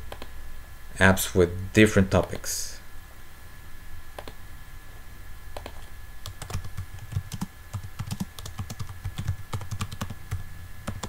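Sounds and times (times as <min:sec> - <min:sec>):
computer keyboard typing: 0:05.6 - 0:11.0.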